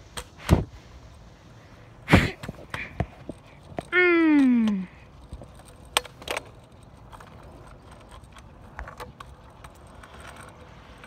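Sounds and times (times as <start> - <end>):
faint outdoor background: 0.0 - 11.0.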